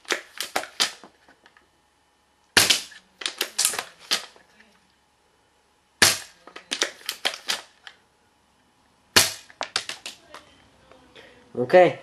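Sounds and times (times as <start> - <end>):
airsoft rifle shots: 2.6 - 4.3, 6.0 - 7.8, 9.1 - 10.2.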